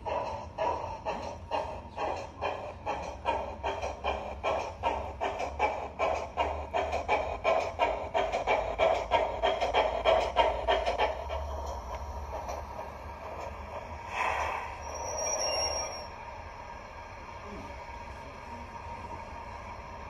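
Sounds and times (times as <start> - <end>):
model locomotive steam chuffs: 0.0 - 20.0
hiss-like burst: 14.0 - 15.1.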